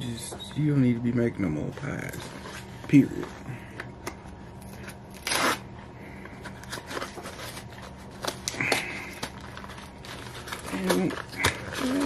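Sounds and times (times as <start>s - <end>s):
wrapper tearing: 5.1s - 5.7s, 6.7s - 12.0s
wrapper crinkling: 6.7s - 12.0s.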